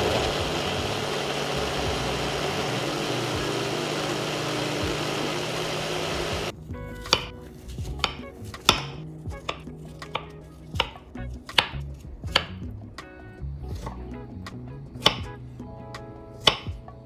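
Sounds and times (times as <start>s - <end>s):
blender motor running: 0.0s - 6.5s
soft background music: 0.2s - 17.0s.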